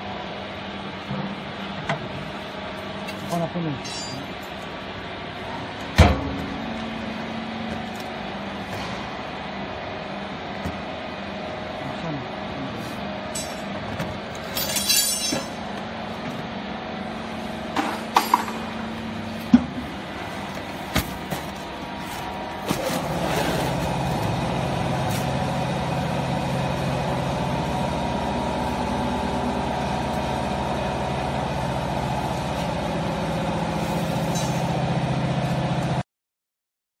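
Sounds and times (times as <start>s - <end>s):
metal clinks and knocks: 3.8s - 4.4s, 14.5s - 15.6s.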